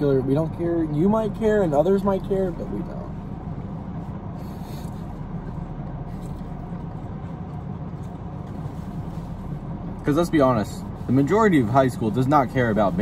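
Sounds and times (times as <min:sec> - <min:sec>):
car cabin hum: 0:00.0 - 0:13.0
faint rustle: 0:03.0 - 0:13.0.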